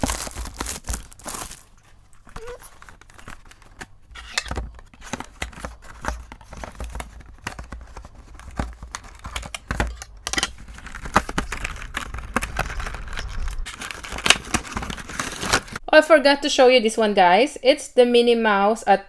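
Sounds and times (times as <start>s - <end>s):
cardboard scraping and tearing: 0.0s - 9.3s, 10.5s - 15.8s.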